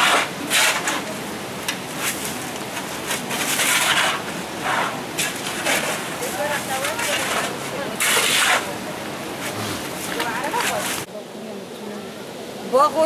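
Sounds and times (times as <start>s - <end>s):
shovels scraping wet mud and gravel: 0.0s - 1.2s, 1.9s - 8.8s, 9.4s - 11.1s.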